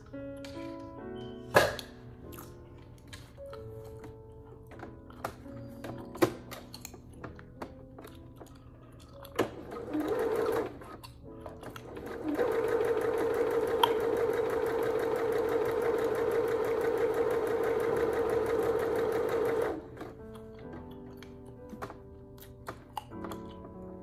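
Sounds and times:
sewing machine stitching: 9.4s - 11.0s, 11.6s - 20.1s.

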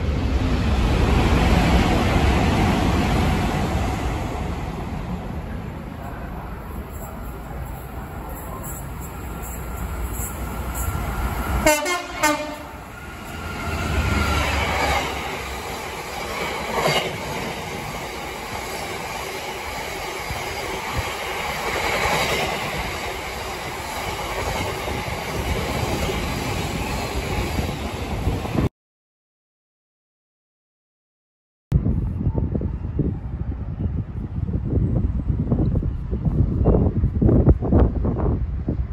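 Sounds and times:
train rumbling and clattering: 0.0s - 28.7s, 31.8s - 38.9s
locomotive horn blast: 11.6s - 12.8s.

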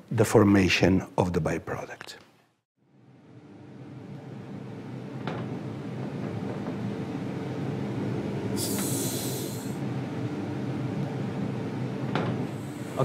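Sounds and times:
laboratory machine hum: 2.8s - 13.0s
short hiss: 8.6s - 9.8s.

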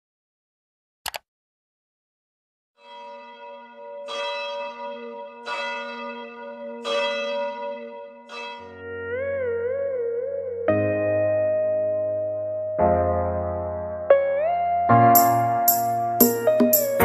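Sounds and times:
keyboard music: 2.8s - 17.0s
church bell tolling: 2.9s - 9.2s.

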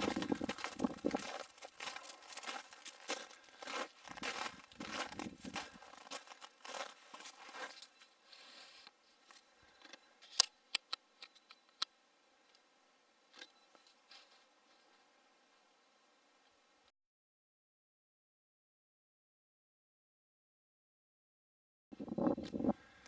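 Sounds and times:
footsteps crunching in snow: 0.0s - 8.8s.

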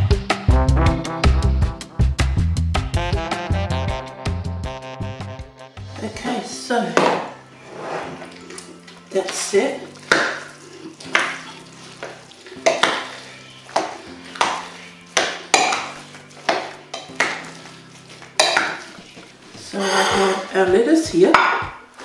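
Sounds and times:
spoons scraping glass bowl: 7.6s - 8.9s, 10.4s - 20.7s
dishes clattering: 10.1s - 17.5s, 18.4s - 20.6s.

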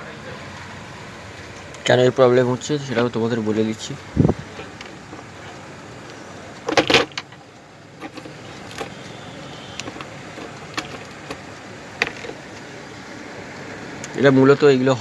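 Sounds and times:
steady background hiss: 0.0s - 15.0s
rattling scrape: 4.3s - 5.7s, 6.6s - 9.0s, 12.0s - 12.4s.

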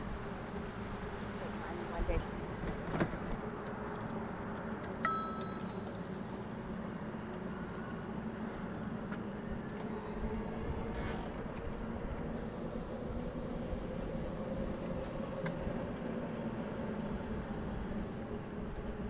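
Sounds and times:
bicycle tyres rolling on pavement: 0.0s - 19.0s
bicycle bell ding: 4.8s - 5.9s.

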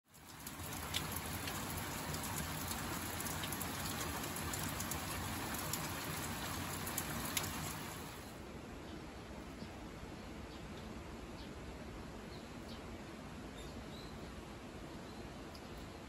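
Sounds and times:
close raindrops ticking: 0.0s - 8.3s
steady rain falling: 0.0s - 10.9s.

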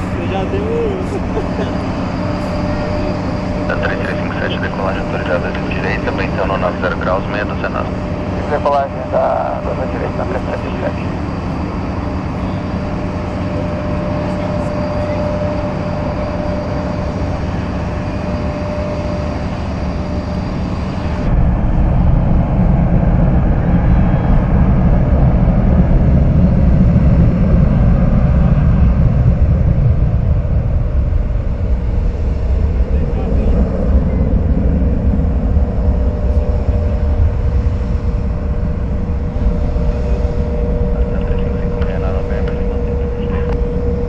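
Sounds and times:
deep rumble of plane on runway: 0.0s - 44.0s
jet engines taxiing: 0.0s - 44.0s.

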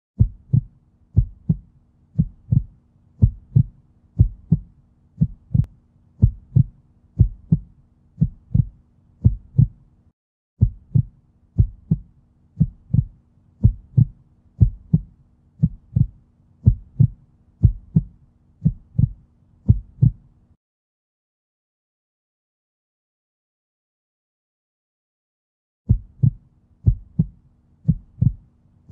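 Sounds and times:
heartbeat thumps: 0.2s - 9.8s, 10.6s - 20.2s, 25.9s - 28.5s.

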